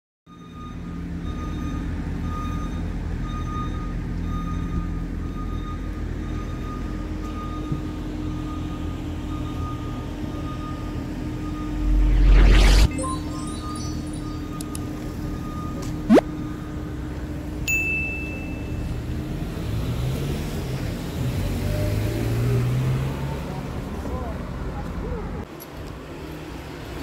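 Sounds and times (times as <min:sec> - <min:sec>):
faint high beep: 0:10.5 - 0:16.5
loud rushing swell: 0:11.4 - 0:14.6.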